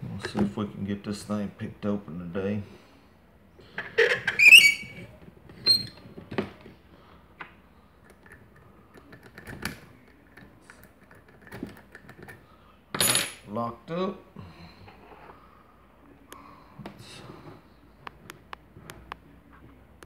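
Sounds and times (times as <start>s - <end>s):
squeaking scrape: 3.8s - 6.0s.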